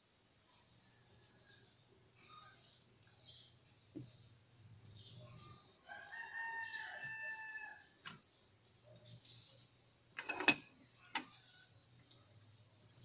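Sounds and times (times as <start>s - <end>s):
birds chirping: 0.0s - 13.0s
rooster crowing: 5.8s - 8.0s
metal pot lid clattering: 10.2s - 10.7s.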